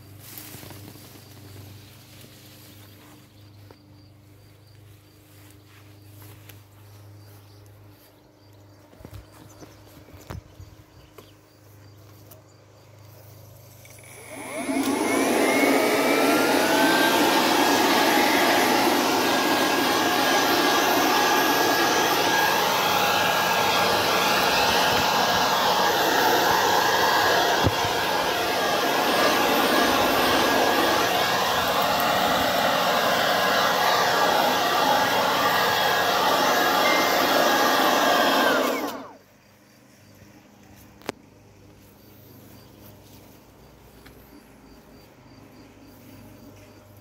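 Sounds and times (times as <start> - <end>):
leaf blower motor whining: 0.0 - 4.4, 13.6 - 39.3.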